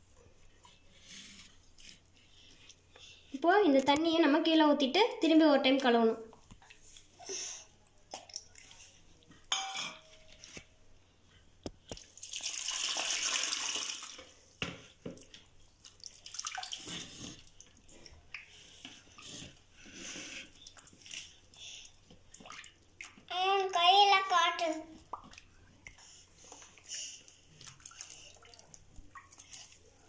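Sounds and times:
steel vessel clink: 0:09.5 - 0:10.3
water splashing and sloshing: 0:11.8 - 0:19.8, 0:20.5 - 0:30.0
water pouring: 0:11.9 - 0:14.4, 0:15.2 - 0:18.2.

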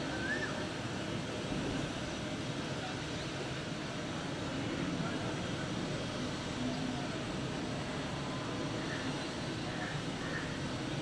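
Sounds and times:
faint voices: 0:04.5 - 0:11.0.

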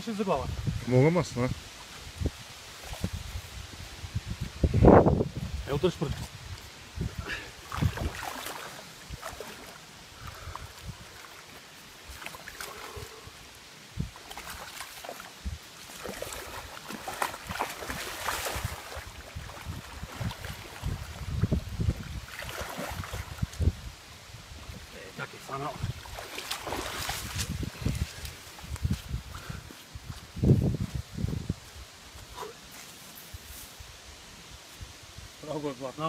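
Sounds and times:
fish splashing in water: 0:07.6 - 0:11.5, 0:14.2 - 0:21.4, 0:22.1 - 0:23.5, 0:26.0 - 0:27.4.

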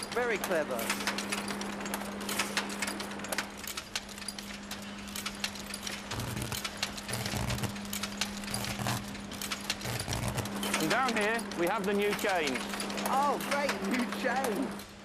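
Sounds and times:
machine clattering clicks: 0:00.0 - 0:15.0
steady machine hum: 0:00.0 - 0:15.0.

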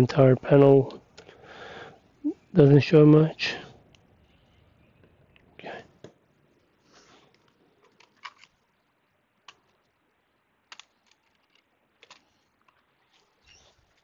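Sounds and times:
small laptop parts clicking: 0:07.3 - 0:08.6, 0:10.7 - 0:12.8.

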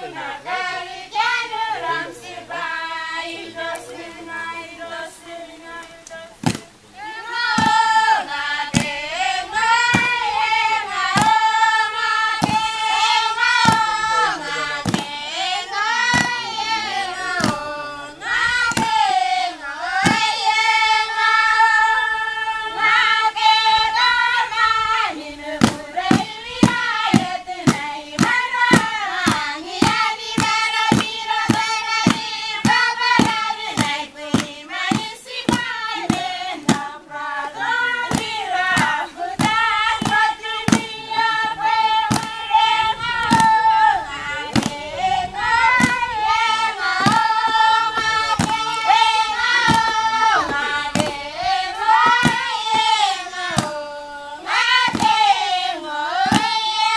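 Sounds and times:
women and girls singing: 0:00.0 - 0:56.9
handclaps: 0:05.8 - 0:06.7, 0:08.7 - 0:09.0, 0:09.6 - 0:10.2, 0:10.8 - 0:15.2, 0:15.8 - 0:17.7, 0:18.5 - 0:19.1, 0:25.6 - 0:37.0, 0:37.6 - 0:43.8, 0:44.4 - 0:53.8, 0:54.5 - 0:55.6, 0:56.2 - 0:56.9.

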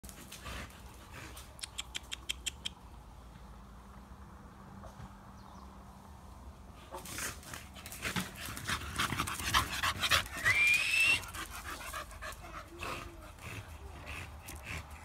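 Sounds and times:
dog panting and snuffling: 0:00.0 - 0:02.8, 0:06.7 - 0:10.6, 0:11.2 - 0:15.0.

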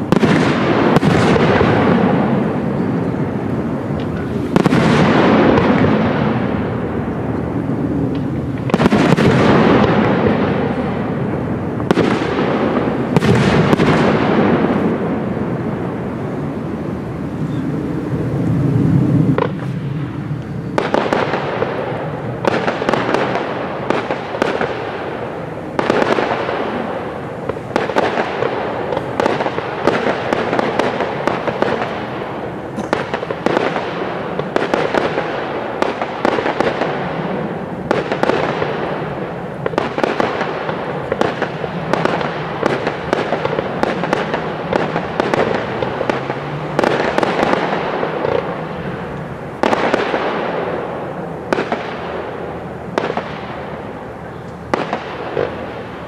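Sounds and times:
fireworks bursting: 0:00.0 - 0:56.0
fireworks crackling and popping: 0:00.0 - 0:56.0.

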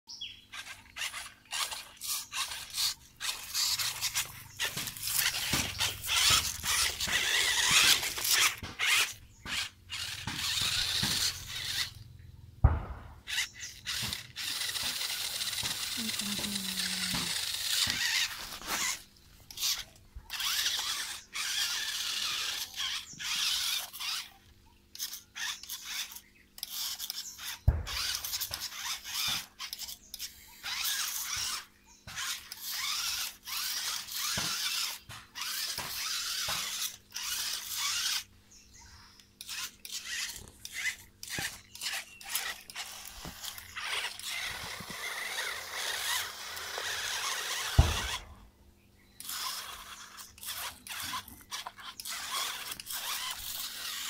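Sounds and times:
toy car motor whining: 0:00.2 - 0:12.2, 0:12.9 - 0:48.4, 0:49.2 - 0:54.0
sharp thump: 0:12.6 - 0:13.3, 0:27.7 - 0:28.2, 0:47.7 - 0:48.4.

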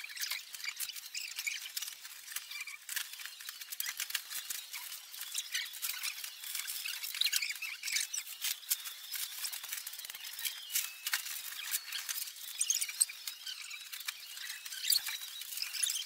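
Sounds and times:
plastic wrapping crinkling: 0:00.0 - 0:16.0.

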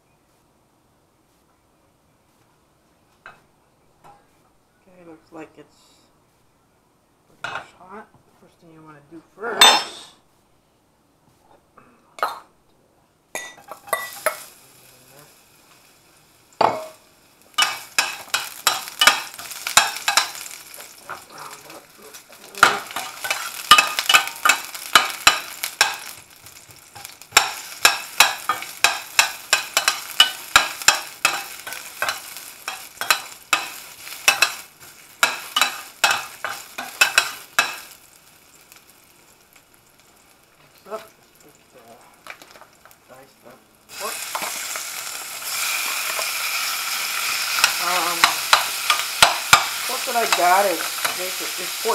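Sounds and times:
food sizzling in oil: 0:13.3 - 0:51.9
utensil scraping a frying pan: 0:16.6 - 0:38.0, 0:43.9 - 0:51.9.

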